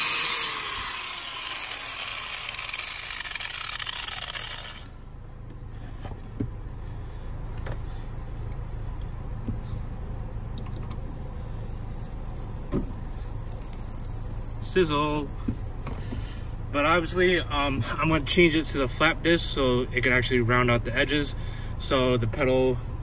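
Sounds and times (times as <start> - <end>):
angle grinder spinning down: 0.0 - 5.0, 11.1 - 15.8
low hum: 0.0 - 23.0.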